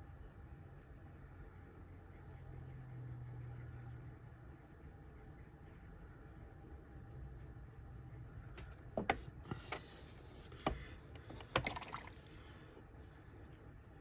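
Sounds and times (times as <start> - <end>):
low steady hum: 0.0 - 14.0
painting supplies knocking on desk: 8.9 - 9.3.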